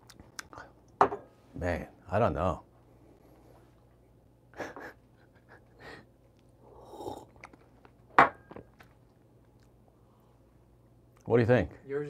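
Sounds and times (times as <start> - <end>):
breathy sipping sounds: 6.5 - 7.8.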